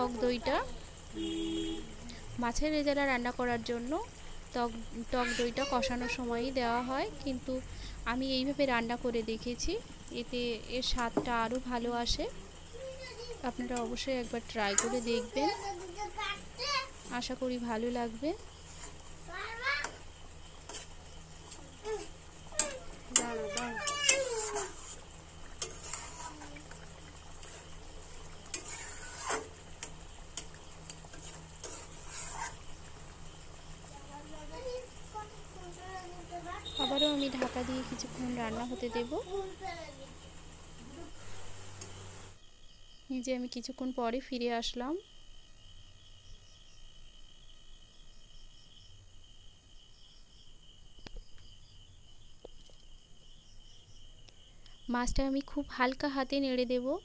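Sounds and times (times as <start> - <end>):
gravy simmering: 0.0 - 42.4
insect-like trill: 0.0 - 57.0
spatula scraping a wok: 13.4 - 16.2, 16.8 - 33.2.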